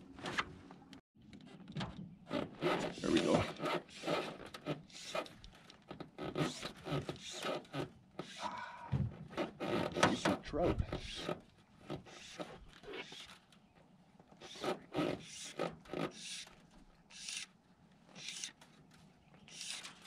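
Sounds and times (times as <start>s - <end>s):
fly line rasping through rod guides: 19.5s - 20.0s.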